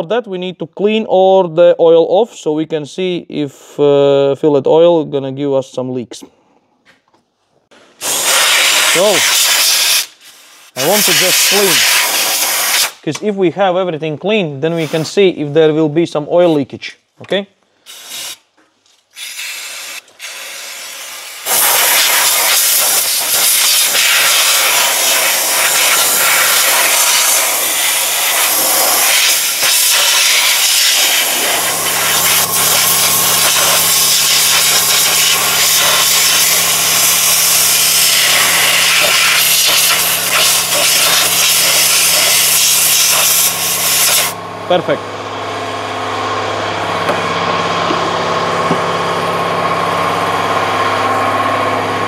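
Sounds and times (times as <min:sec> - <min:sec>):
aerosol spray hissing: 0:08.0 - 0:13.0, 0:14.7 - 0:15.1, 0:17.9 - 0:18.4, 0:19.2 - 0:44.4
steady low hum: 0:44.3 - 0:52.0.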